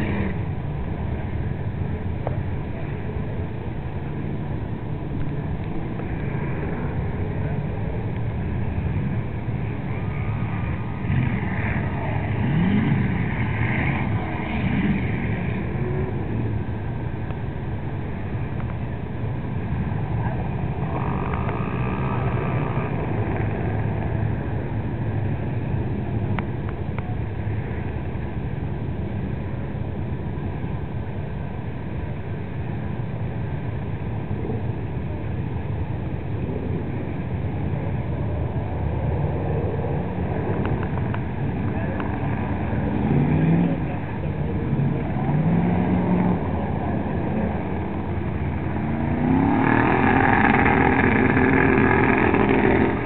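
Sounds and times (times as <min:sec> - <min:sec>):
vehicle driving through mud pit: 0:00.0 - 0:01.2, 0:05.8 - 0:17.4, 0:38.2 - 0:53.0
engine rumbling: 0:00.0 - 0:53.0.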